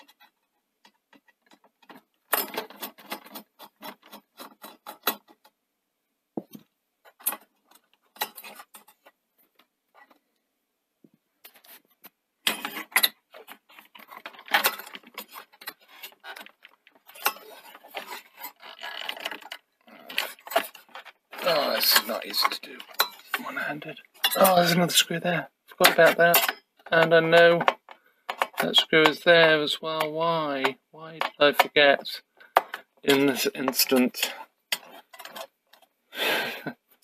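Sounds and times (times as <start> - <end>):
screwdriver clicking and scraping: 0.0 - 5.4, 7.1 - 9.1, 11.4 - 23.4, 32.4 - 35.9
sheet-metal parts rattling: 0.0 - 5.4, 12.5 - 35.8.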